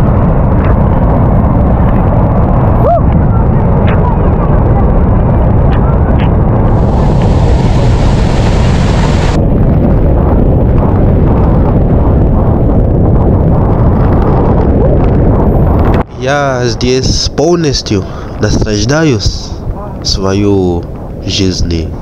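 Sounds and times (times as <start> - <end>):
waterfall roaring: 6.7 - 9.4.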